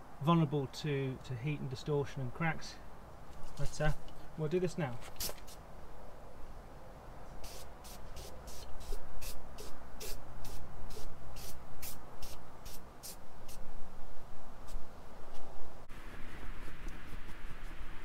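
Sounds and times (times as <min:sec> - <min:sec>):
aerosol can spraying: 0:05.1 - 0:05.6, 0:07.4 - 0:13.6.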